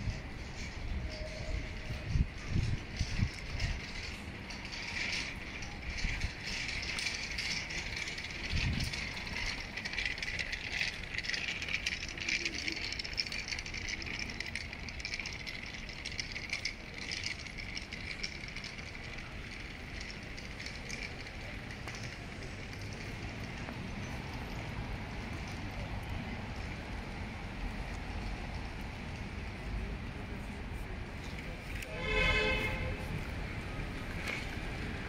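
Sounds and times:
fine rattling and ticking: 0:01.7 - 0:29.7.

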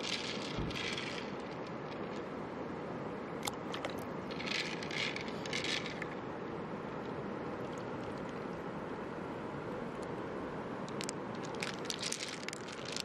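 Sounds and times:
pearls clicking and rattling in shell: 0:00.0 - 0:02.3, 0:04.3 - 0:06.1, 0:10.9 - 0:13.0
running stream water hiss: 0:00.0 - 0:13.0.

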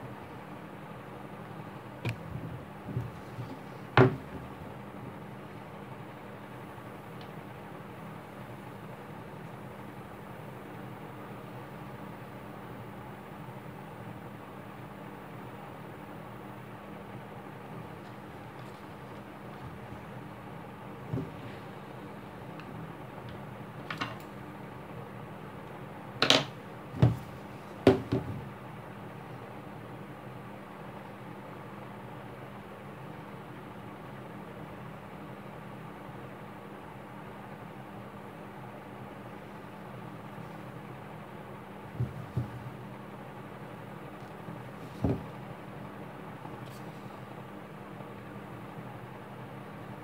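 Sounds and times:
steady low hum: 0:00.0 - 0:50.0
dull thumps: 0:02.0 - 0:04.5, 0:21.0 - 0:21.6, 0:27.0 - 0:28.5, 0:42.0 - 0:42.8, 0:44.9 - 0:45.4
handling knocks and taps: 0:02.0 - 0:04.5, 0:26.2 - 0:27.3, 0:27.9 - 0:28.5, 0:42.0 - 0:42.8, 0:44.9 - 0:45.4.

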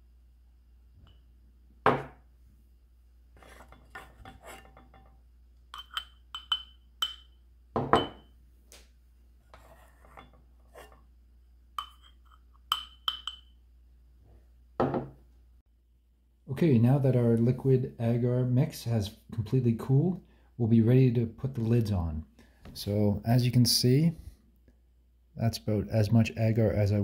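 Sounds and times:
metal spoon clinking on saucepan: 0:03.7 - 0:08.3, 0:11.8 - 0:13.6.

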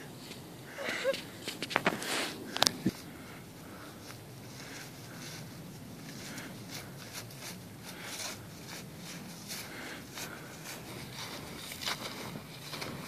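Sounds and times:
snowshoe footsteps in deep snow: 0:04.6 - 0:13.0.

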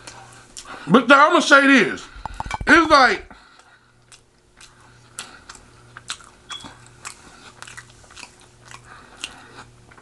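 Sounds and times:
person chewing food: 0:00.0 - 0:00.8, 0:03.4 - 0:10.0.

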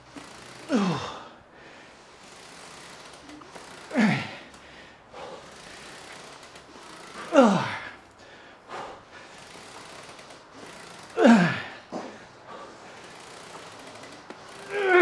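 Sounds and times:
short breaths: 0:00.2 - 0:15.0
man groaning with effort: 0:00.7 - 0:01.4, 0:03.9 - 0:04.5, 0:07.2 - 0:08.0, 0:11.2 - 0:11.9, 0:14.6 - 0:15.0.

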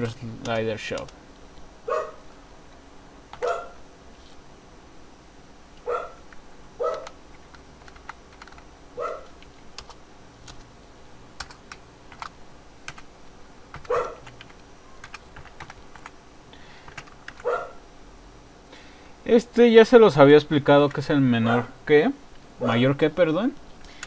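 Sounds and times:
keyboard typing: 0:00.4 - 0:01.2, 0:06.2 - 0:10.7, 0:11.4 - 0:13.1, 0:13.7 - 0:16.2, 0:16.9 - 0:17.5.

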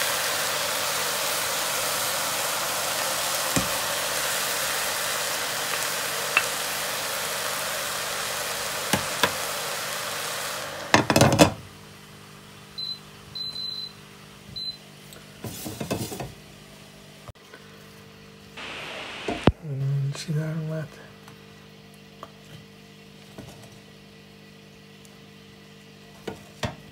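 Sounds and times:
steady hiss: 0:00.0 - 0:11.0, 0:18.6 - 0:20.0.

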